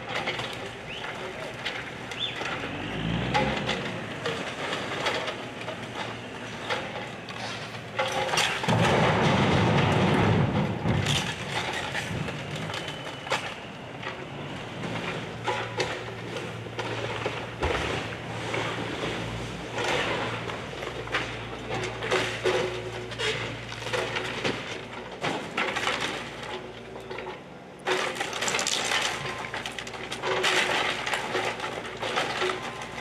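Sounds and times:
excavator engine humming: 0.0 - 8.7
debris clattering: 0.0 - 33.0
crash of falling debris: 0.1 - 33.0
timber cracking and splintering: 27.8 - 33.0.

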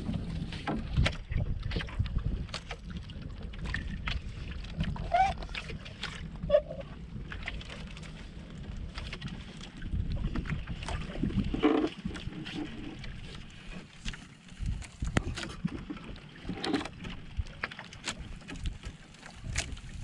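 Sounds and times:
water around boat: 0.0 - 20.0
wind: 0.0 - 20.0
clicks and knocks of line hauling: 7.3 - 20.0.

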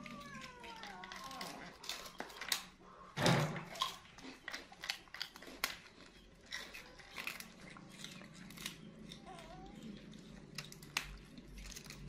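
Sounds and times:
chewing clicks and smacks: 3.6 - 12.0.

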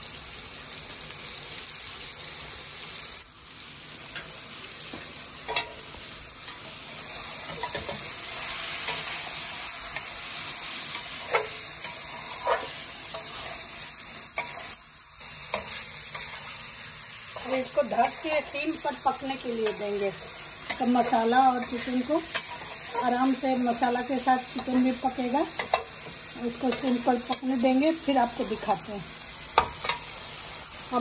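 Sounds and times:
food sizzling in hot oil: 0.0 - 31.0
spatula scraping metal pan: 11.0 - 13.6.

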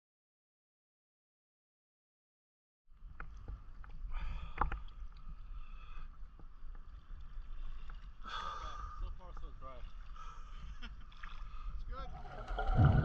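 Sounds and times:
water sloshing and lapping: 3.0 - 13.0.

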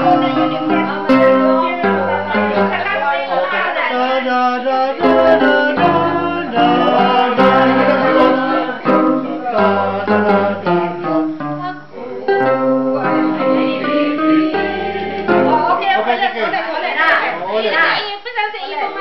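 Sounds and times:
electronic keyboard chords: 0.0 - 3.5, 5.0 - 16.2
group of voices singing: 0.0 - 17.5.

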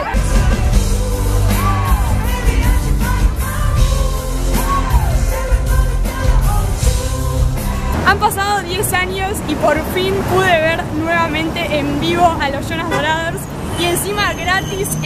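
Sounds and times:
man singing: 0.0 - 8.0
heavy bass and beat: 0.0 - 8.1
electric and acoustic guitars: 0.0 - 9.4.

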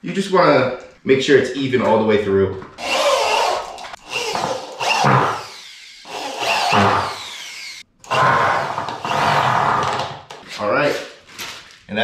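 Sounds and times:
electric drill drilling into wood: 2.8 - 10.0.

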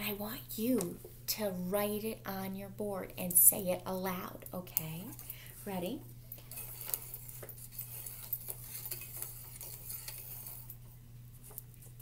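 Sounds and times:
low electrical hum: 0.0 - 12.0
clock hands clicking and scraping: 6.4 - 10.8.

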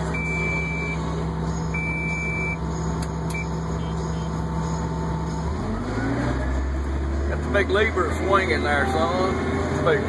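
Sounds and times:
low engine drone: 0.0 - 10.0
backup alarm beeping: 0.1 - 1.0, 1.8 - 2.6.

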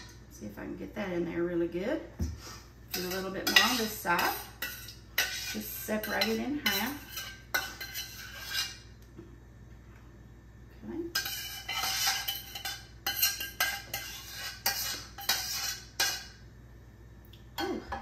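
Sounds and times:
metal spoon scraping a steel pot: 2.9 - 8.9, 11.1 - 16.4.

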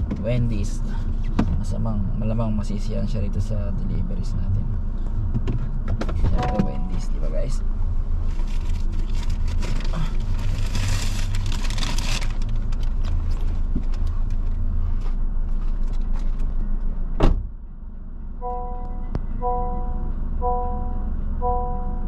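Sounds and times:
car engine idling: 0.0 - 22.0
sharp thump: 17.2 - 17.5
three-note chime: 18.4 - 22.0.

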